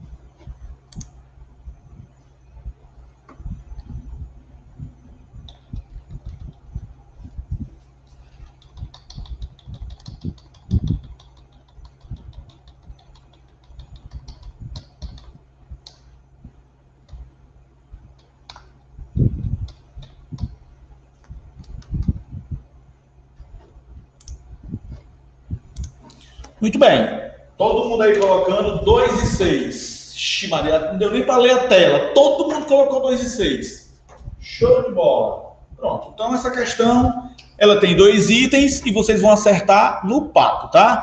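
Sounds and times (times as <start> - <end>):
keyboard typing and mouse clicks: 3.2 - 4.2, 4.9 - 16.1, 18.1 - 20.6, 21.2 - 22.4, 23.4 - 26.6.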